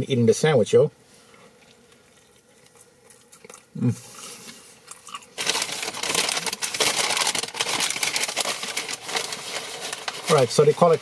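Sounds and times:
paper packaging crinkling: 5.0s - 11.0s.

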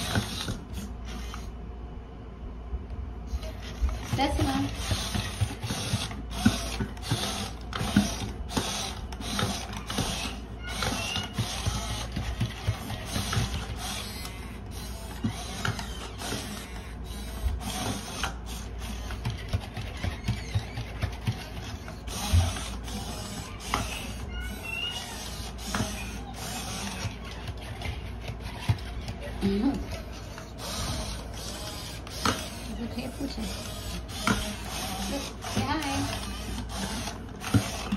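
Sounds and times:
gear motors whirring: 0.0s - 1.6s, 3.3s - 37.9s
feet tapping on wooden floor: 18.9s - 25.0s.

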